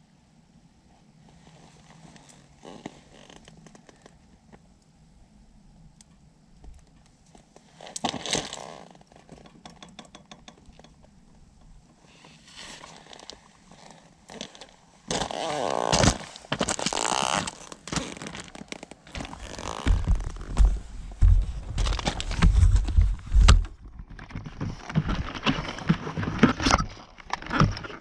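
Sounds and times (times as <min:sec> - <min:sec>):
boots crunching on gravel: 0:14.3 - 0:23.5.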